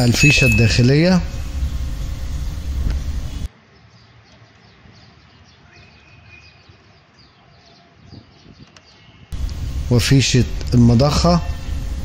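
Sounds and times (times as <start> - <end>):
birds chirping faintly: 0.1 - 12.0
loud rumbling noise: 1.2 - 3.5, 9.4 - 12.0.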